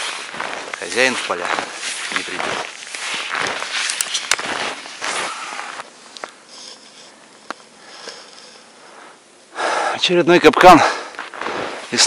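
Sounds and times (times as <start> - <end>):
footsteps crunching in snow: 0.0 - 5.9, 11.1 - 12.0.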